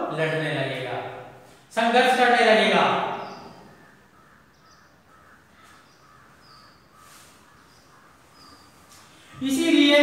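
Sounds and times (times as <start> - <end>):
faint bird calls: 3.0 - 10.0.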